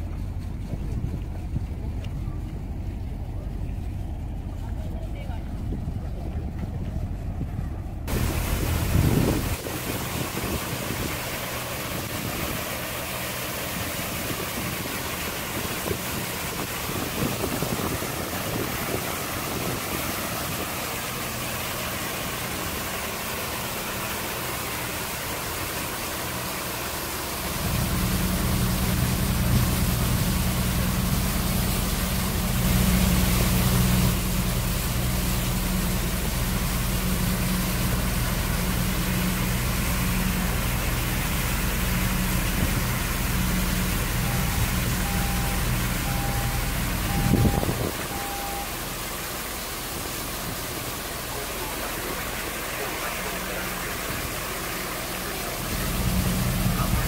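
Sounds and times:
low boat engine drone: 0:00.0 - 0:57.0
water jets hissing and splashing: 0:08.1 - 0:57.0.

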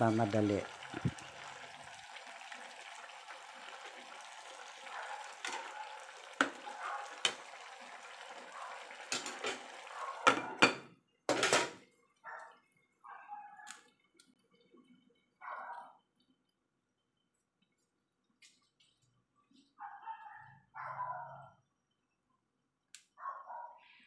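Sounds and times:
simmering pot and gas burner hiss: 0:00.0 - 0:12.2, 0:13.7 - 0:17.2
glass lid clattering on pot: 0:10.2 - 0:11.8.

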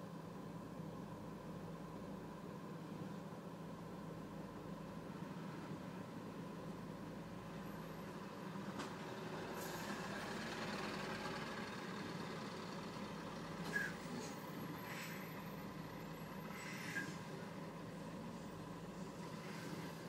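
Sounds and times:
car engine idling: 0:08.5 - 0:13.7.

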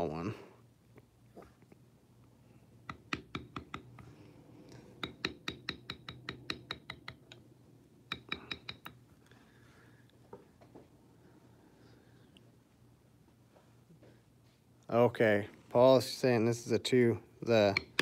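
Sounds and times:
mallet tapping stamping tool: 0:02.8 - 0:04.1, 0:05.0 - 0:07.4, 0:08.1 - 0:08.9, 0:17.7 - 0:18.0.

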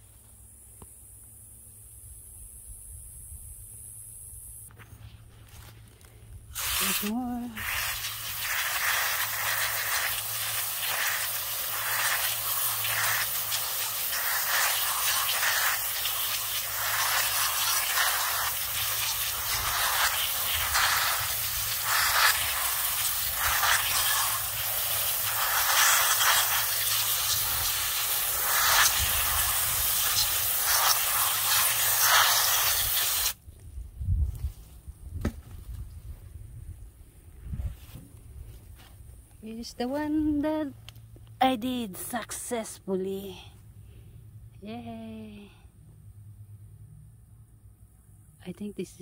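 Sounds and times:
hose spray hissing: 0:06.5 - 0:33.4
water spattering on leaves: 0:06.6 - 0:33.4.

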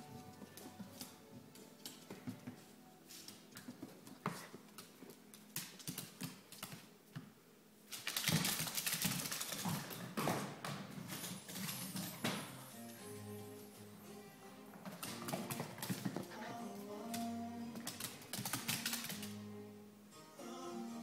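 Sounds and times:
dog claws clicking on wooden floor: 0:03.1 - 0:07.3, 0:07.9 - 0:10.2, 0:14.8 - 0:16.4, 0:17.1 - 0:19.3.

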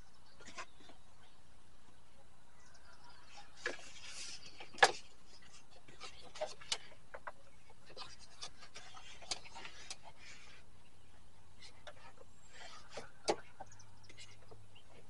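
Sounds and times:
light clicks and rubbing: 0:03.2 - 0:10.7, 0:11.6 - 0:15.0.

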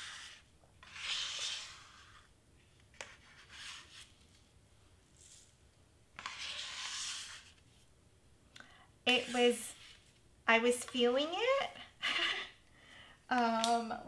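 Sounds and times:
metal ruler scraping a mat: 0:00.0 - 0:02.3, 0:06.2 - 0:07.6.

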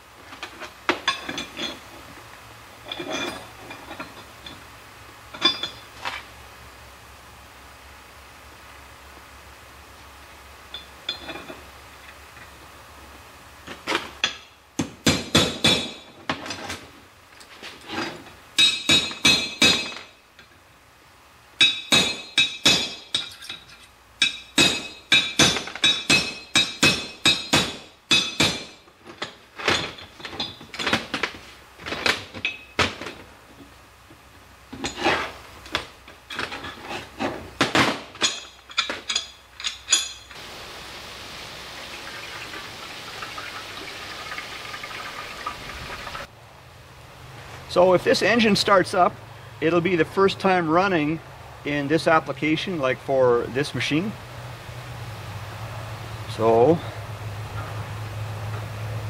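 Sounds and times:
steel parts clinking together: 0:00.4 - 0:01.8, 0:02.8 - 0:04.6, 0:05.3 - 0:05.9, 0:17.8 - 0:20.5, 0:21.6 - 0:31.2, 0:38.1 - 0:40.4.

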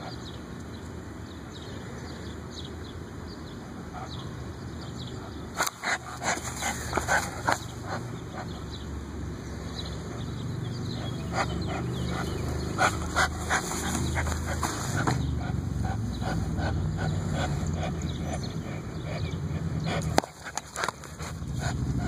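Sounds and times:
dog growling: 0:05.6 - 0:08.7, 0:10.1 - 0:22.0.

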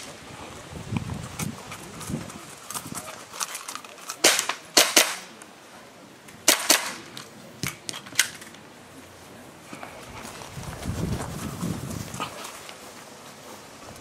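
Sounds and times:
airsoft pistol shots: 0:04.2 - 0:05.3, 0:06.4 - 0:07.1.

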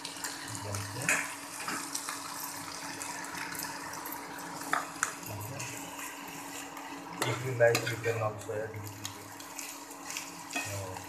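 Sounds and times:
vegetables sizzling in a pan: 0:00.0 - 0:11.0
metal spoon scraping a pan: 0:05.6 - 0:08.2, 0:09.5 - 0:11.0.

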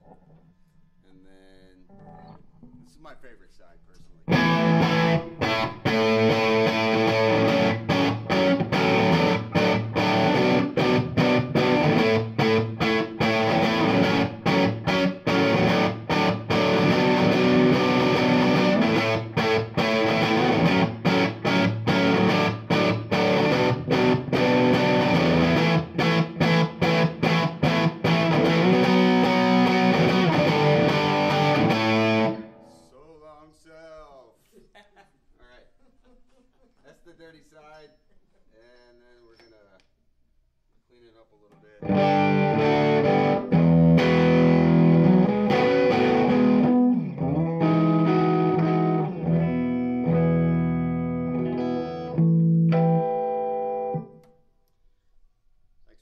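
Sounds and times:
distorted electric guitar chords: 0:04.3 - 0:32.7, 0:41.8 - 0:54.2.

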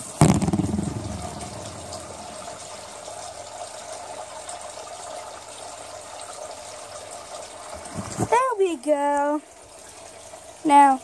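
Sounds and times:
steady rushing noise: 0:00.2 - 0:02.4
low handling rumble: 0:00.2 - 0:02.5.

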